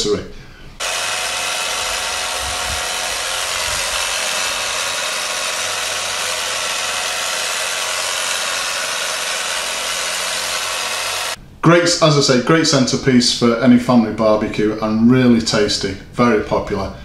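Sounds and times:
electric carving knife running: 0.8s - 11.4s.

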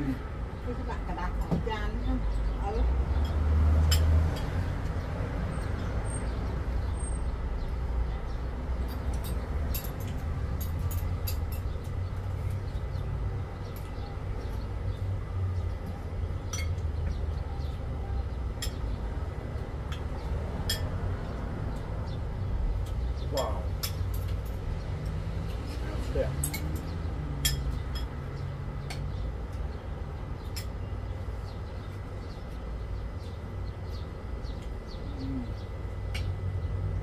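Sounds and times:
cutlery clicking against plates: 8.8s - 12.0s, 23.8s - 25.6s, 26.4s - 28.2s.

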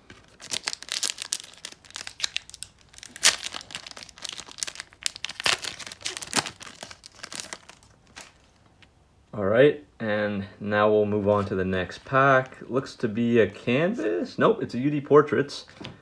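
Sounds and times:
foil wrapper tearing and crinkling: 0.2s - 8.5s.

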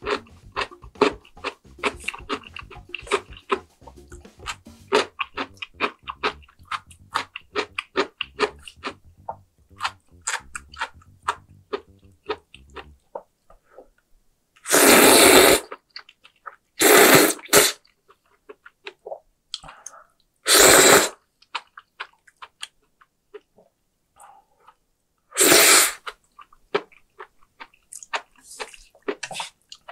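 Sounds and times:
wet chewing and lip-smacking: 0.0s - 12.9s, 26.0s - 29.9s
loud noodle slurps: 14.6s - 15.8s, 16.8s - 17.8s, 20.5s - 21.2s, 25.4s - 26.0s.

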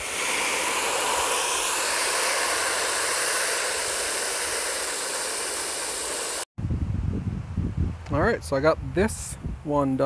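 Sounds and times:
hose spray hitting water: 0.0s - 6.5s.

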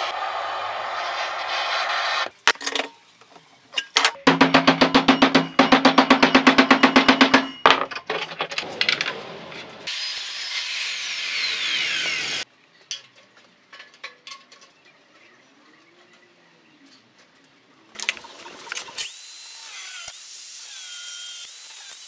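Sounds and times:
power saw cutting steel: 0.0s - 2.4s, 9.8s - 12.4s, 18.6s - 22.0s.

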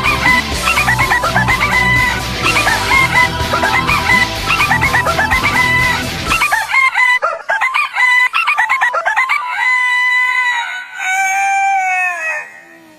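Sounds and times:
heavy metal music: 0.0s - 6.9s
rooster crows edited into tune: 0.0s - 12.8s.

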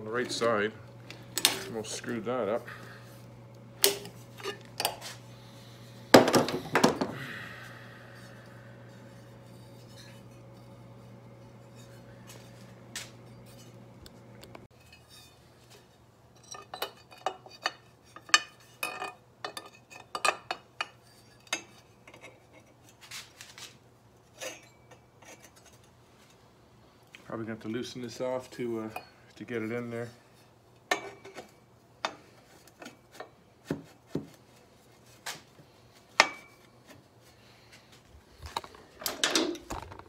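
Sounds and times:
low steady hum: 0.0s - 23.0s
metal pipe clanging: 16.4s - 22.3s.

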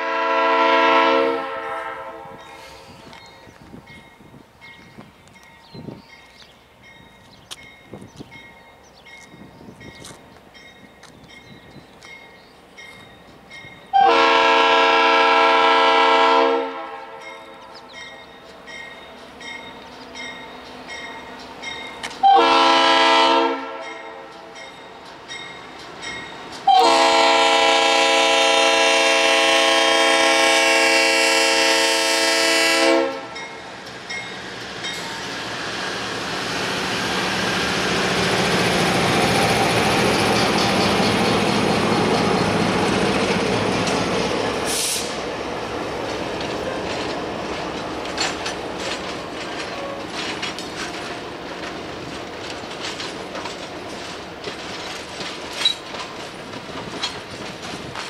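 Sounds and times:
locomotive air horn blasts: 0.0s - 2.4s, 13.9s - 17.5s, 22.2s - 24.3s, 26.7s - 33.4s
train wheels rolling past: 0.0s - 58.0s.

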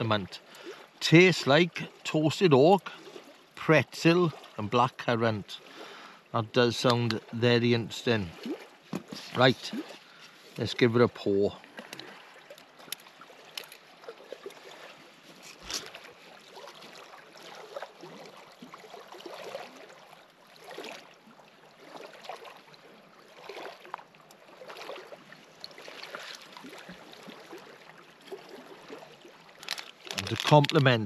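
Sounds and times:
water lapping against shore: 0.0s - 31.0s.

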